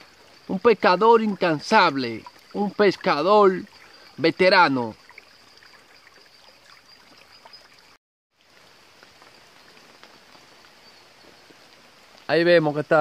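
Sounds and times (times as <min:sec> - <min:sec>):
rain drip ticks: 0:00.0 - 0:04.3, 0:08.4 - 0:12.7
stream water hissing: 0:00.0 - 0:13.0.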